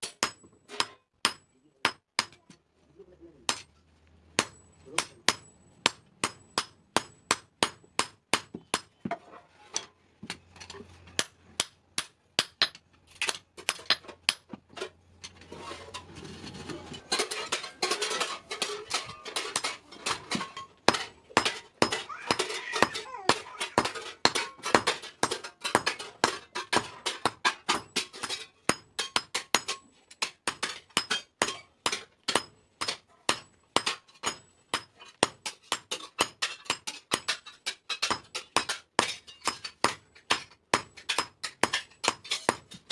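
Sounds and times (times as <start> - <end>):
hammer striking iron on anvil: 0.0 - 2.5, 4.4 - 9.0, 17.1 - 42.8.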